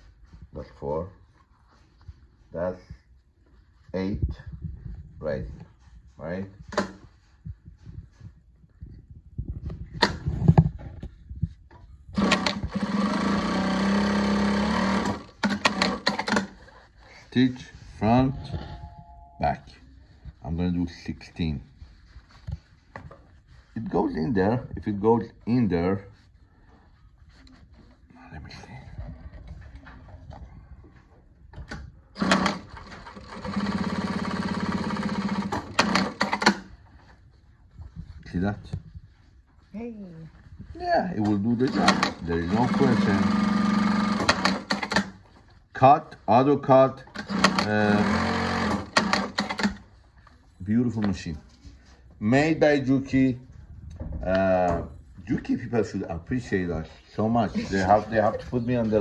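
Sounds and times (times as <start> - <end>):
sewing machine running: 12.2 - 16.5, 32.2 - 36.6, 41.6 - 45.1, 47.1 - 49.8.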